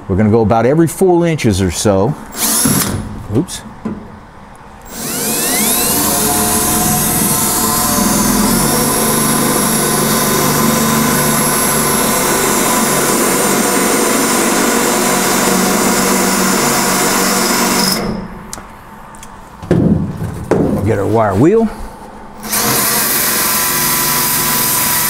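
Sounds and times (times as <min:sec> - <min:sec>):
cordless drill whining through metal: 0:02.3 - 0:03.0, 0:04.8 - 0:18.4, 0:22.4 - 0:25.0.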